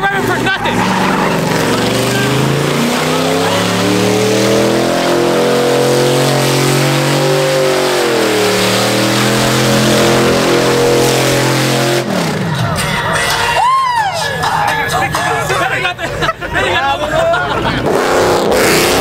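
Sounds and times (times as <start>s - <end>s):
tyres spinning on asphalt: 0.0s - 13.6s
truck engine revving high: 0.0s - 19.0s.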